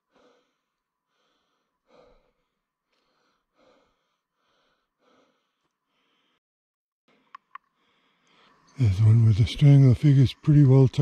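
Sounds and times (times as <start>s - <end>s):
person breathing while walking: 0.0s - 6.4s, 7.1s - 8.6s.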